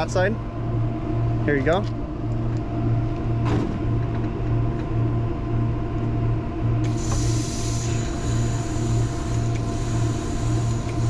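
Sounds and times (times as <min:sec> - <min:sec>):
low machine hum: 0:00.0 - 0:11.0
compressed gas hissing: 0:06.8 - 0:11.0.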